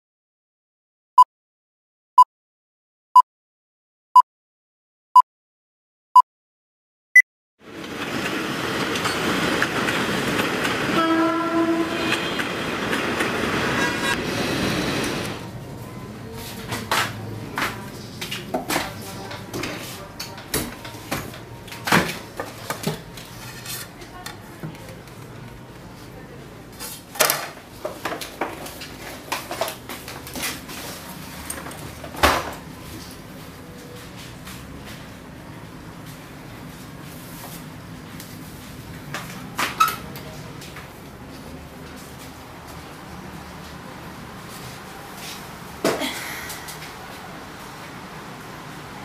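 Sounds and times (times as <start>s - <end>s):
horn-like tone: 10.9s - 12.5s.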